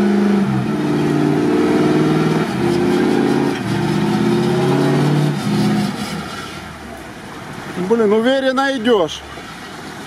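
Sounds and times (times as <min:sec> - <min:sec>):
truck engine straining in mud: 0:00.0 - 0:10.0.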